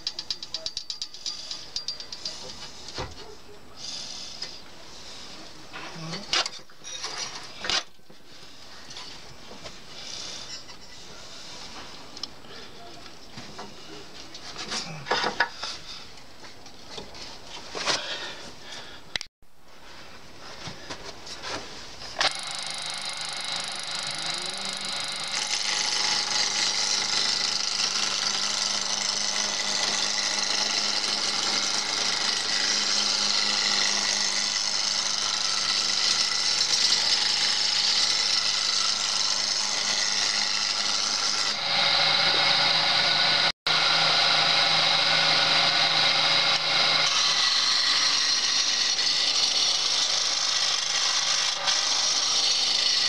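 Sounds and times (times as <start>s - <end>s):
wood shaving scraping hiss: 3.8s - 5.9s
lathe motor hum: 22.2s - 53.0s.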